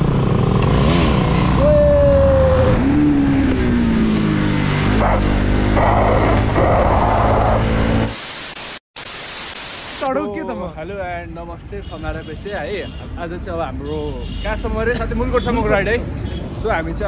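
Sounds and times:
steady hiss: 8.1s - 10.1s.

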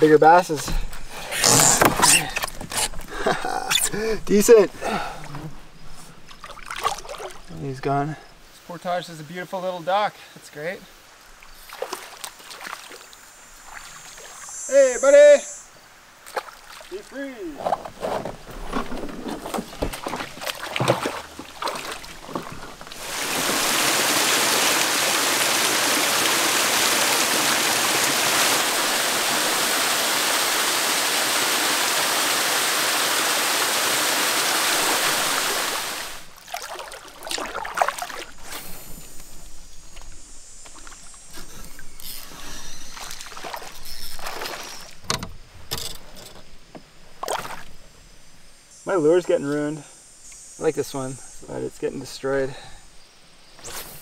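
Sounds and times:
canoe knocks: 0.6s - 3.1s, 17.5s - 23.6s
canoe splashing on water: 0.6s - 8.0s, 11.4s - 14.4s, 16.2s - 39.1s, 42.2s - 45.2s
small waterfall rushing: 20.5s - 38.4s.

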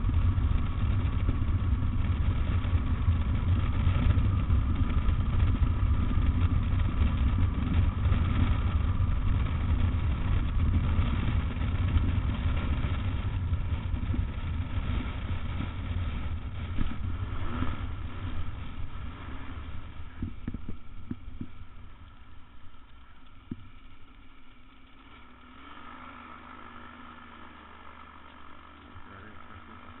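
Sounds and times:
wheels bumping over ground: 0.0s - 26.4s
light aircraft engine: 0.0s - 30.0s
rush of air: 12.7s - 22.1s.

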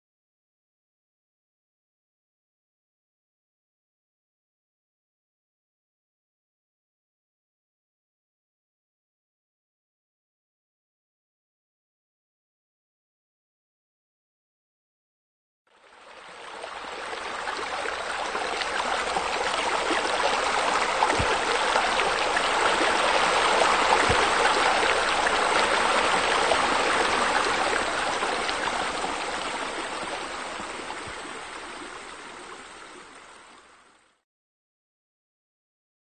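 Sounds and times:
running splashing water: 16.7s - 32.7s.

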